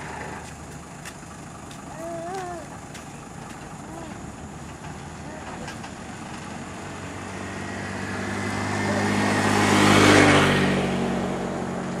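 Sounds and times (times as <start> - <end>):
motor scooter passing by: 5.1 - 12.0.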